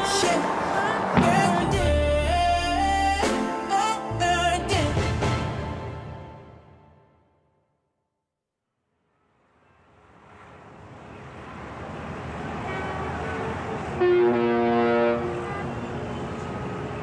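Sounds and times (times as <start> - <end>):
city ambience: 0.0 - 4.7, 8.9 - 17.0
boat horn: 12.6 - 16.7.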